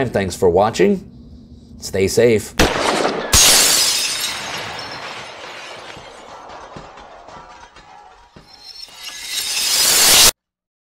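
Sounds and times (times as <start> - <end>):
glass shards clinking: 3.4 - 6.3, 8.4 - 10.3
high ringing tones: 8.5 - 10.3.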